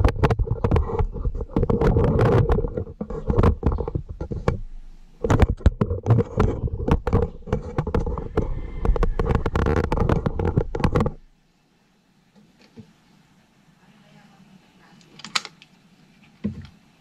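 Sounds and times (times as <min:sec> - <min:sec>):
hands crackling with wiring: 0:00.0 - 0:11.3.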